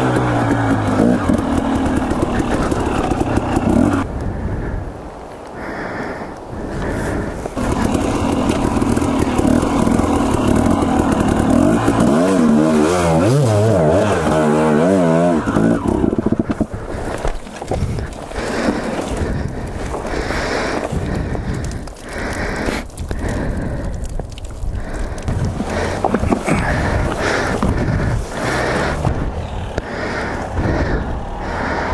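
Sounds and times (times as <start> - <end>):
dirt bike engine revving: 0.0 - 4.1, 7.6 - 17.1, 25.6 - 31.9
scraping and brush noise: 6.7 - 22.0, 24.4 - 30.9.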